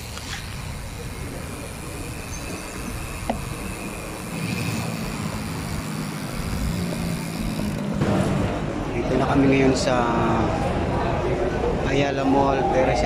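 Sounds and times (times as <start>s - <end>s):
vehicle engine running nearby: 0.0s - 9.8s
road traffic: 0.0s - 13.0s.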